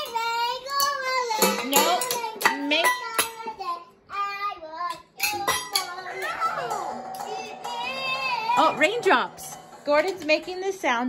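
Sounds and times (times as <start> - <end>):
child singing: 0.0 - 8.8.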